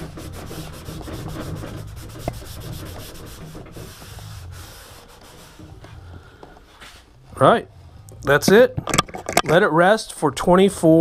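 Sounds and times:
cloth rubbing glossy surface: 0:00.0 - 0:06.1.

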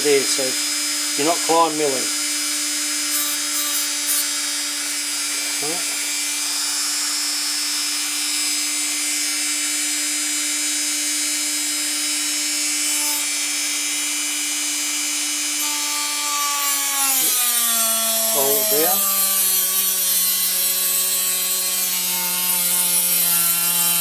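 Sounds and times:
rotary tool whining: 0:00.0 - 0:24.0.

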